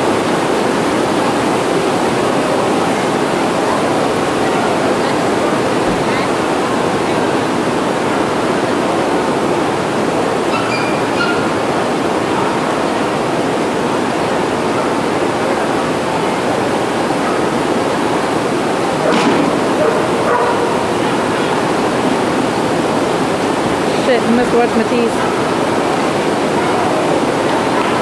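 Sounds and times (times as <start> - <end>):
heavy rain on a roof: 0.0 - 28.0
dog barking: 10.5 - 11.6, 19.0 - 21.0.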